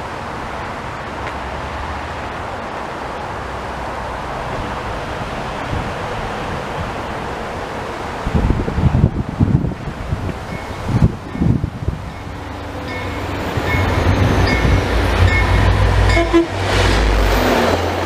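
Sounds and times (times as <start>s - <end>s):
wind buffeting microphone: 4.5s - 18.0s.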